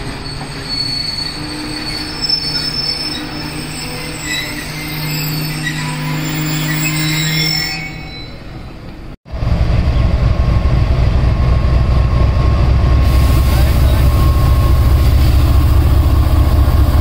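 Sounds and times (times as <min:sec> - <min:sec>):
train wheels squealing on rails: 0:00.0 - 0:09.1, 0:12.0 - 0:17.0
train rumbling close by: 0:08.7 - 0:17.0.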